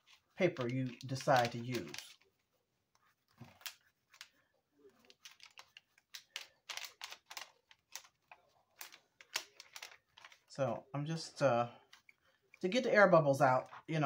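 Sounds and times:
paper backing rustling: 0.0 - 10.5.

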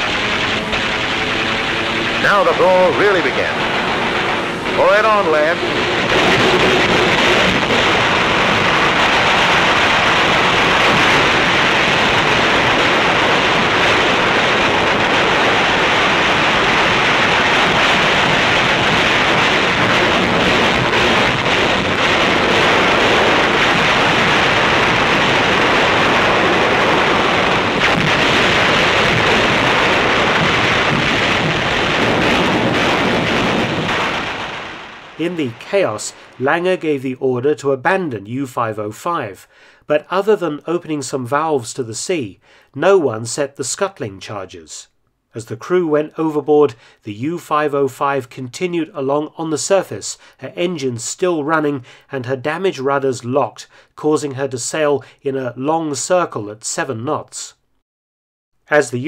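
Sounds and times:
anti-aircraft guns firing: 0.0 - 36.9.

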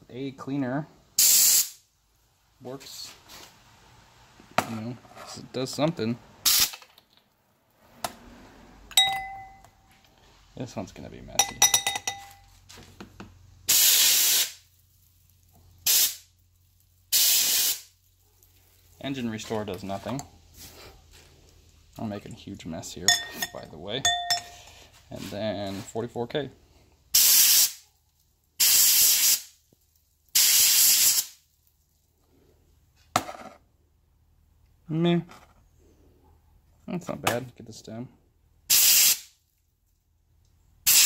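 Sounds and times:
hissing spray blasts: 1.2 - 1.8, 13.7 - 14.7, 15.8 - 16.3, 17.1 - 18.0, 27.1 - 27.8, 28.6 - 29.6, 30.3 - 31.4, 38.7 - 39.3.

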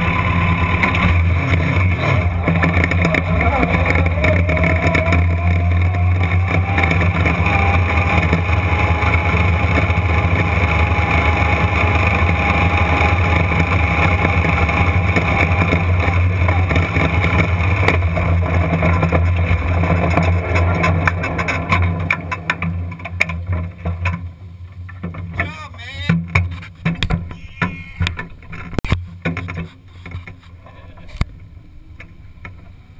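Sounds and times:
race car engine running: 0.0 - 25.5.

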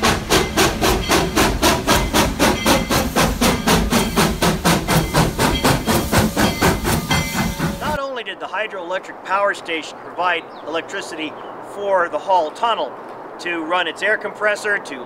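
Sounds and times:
steam locomotive exhaust chuffing: 0.0 - 8.0.

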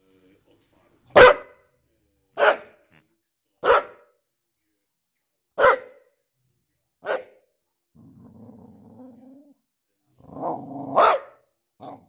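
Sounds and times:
dog barking: 1.1 - 1.6, 2.4 - 2.8, 3.6 - 4.1, 5.6 - 6.1, 7.0 - 7.4, 10.9 - 12.0
dog growling: 7.9 - 9.6, 10.2 - 11.2, 11.8 - 12.0.

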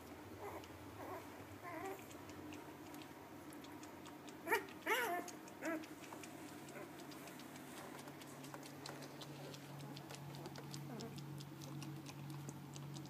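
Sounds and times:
puppies squeaking and whimpering: 4.4 - 5.8.

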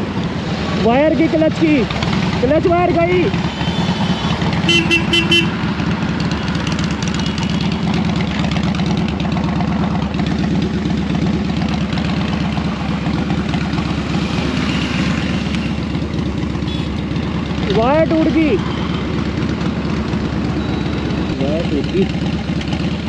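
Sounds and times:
motorcycle engine running: 0.0 - 23.0
traffic noise: 0.0 - 23.0
vehicle horn short beeps: 3.6 - 5.6.

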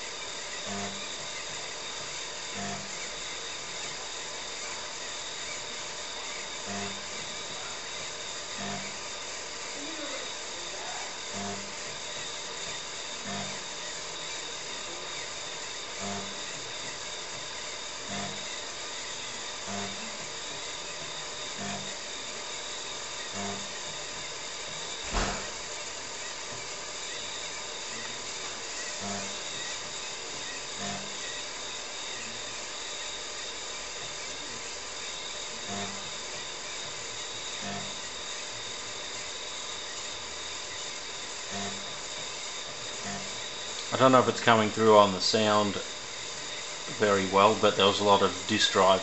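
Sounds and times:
computer and floppy drive whirring: 0.0 - 49.0
short low buzzes: 8.4 - 9.1, 15.8 - 16.6, 18.0 - 18.7, 19.6 - 20.2, 23.2 - 23.8, 28.9 - 29.8, 30.7 - 31.4, 35.5 - 36.2, 37.4 - 38.1, 41.4 - 42.0, 42.9 - 49.0
floppy drive knocks: 25.0 - 25.6.

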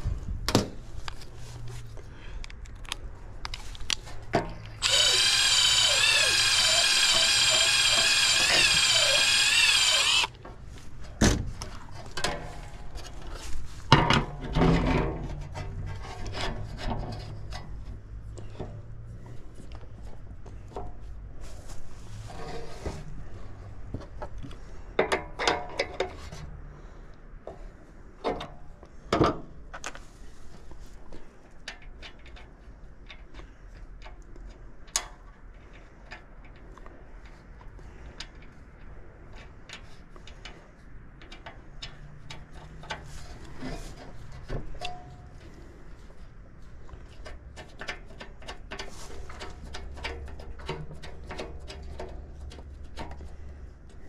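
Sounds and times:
tools clicking and knocking: 3.8 - 10.3, 41.2 - 43.1, 47.0 - 53.3.

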